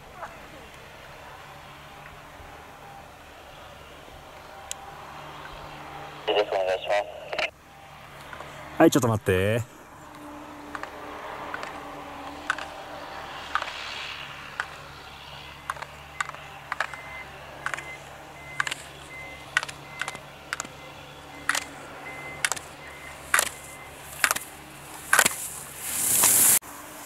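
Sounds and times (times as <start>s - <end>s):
skier striking slalom poles: 12.4s - 12.7s, 22.4s - 26.6s.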